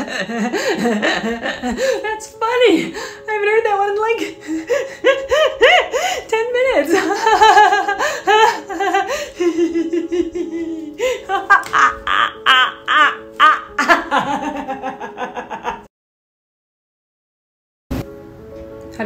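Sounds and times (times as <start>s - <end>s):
woman laughing loudly: 0.0s - 2.1s, 4.7s - 6.2s, 6.8s - 15.9s.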